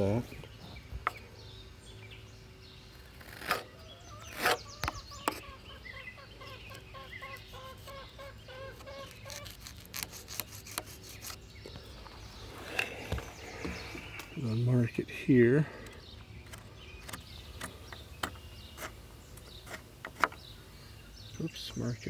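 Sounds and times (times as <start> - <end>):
chickens clucking: 3.8 - 9.5.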